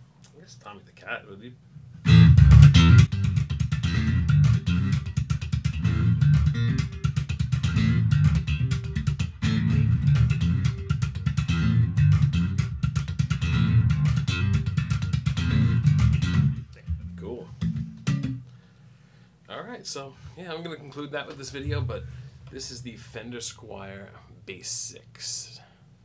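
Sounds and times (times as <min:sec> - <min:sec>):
electric bass riff: 0:02.0 - 0:18.6, 0:21.4 - 0:23.1.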